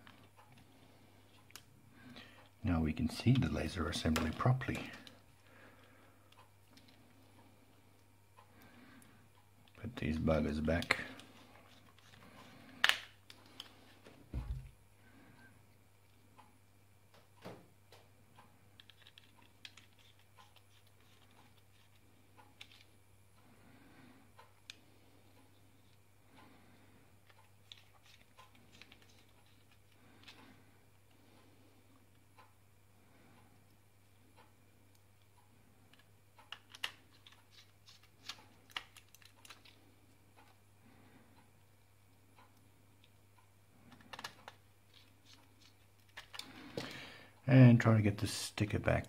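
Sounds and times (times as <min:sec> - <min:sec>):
screwdriver clicking on plastic: 0:35.9 - 0:38.1.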